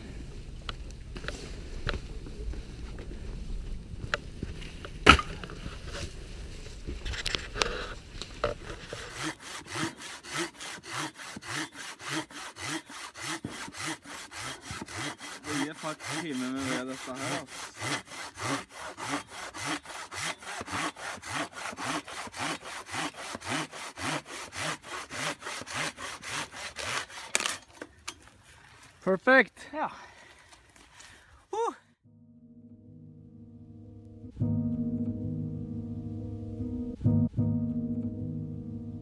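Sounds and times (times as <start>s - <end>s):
hand saw cutting wood: 8.5s - 28.2s.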